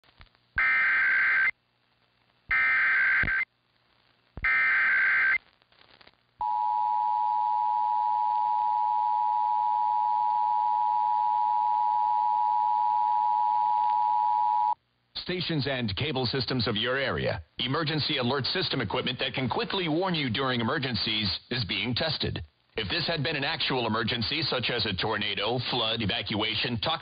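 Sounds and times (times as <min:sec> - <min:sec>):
radio hiss: 0:00.0 - 0:06.4, 0:15.1 - 0:27.0.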